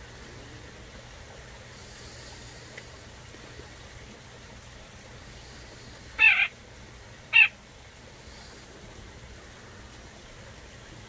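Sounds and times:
nuthatch calls: 5.5 - 6.6, 7.3 - 7.6.

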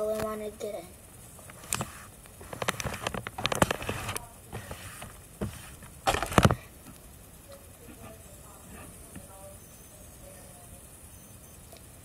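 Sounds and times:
close scratching and scraping: 1.4 - 6.6.

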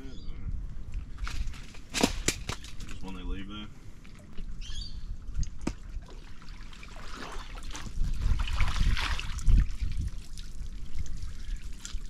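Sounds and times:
water splashing and streaming: 5.3 - 12.0.

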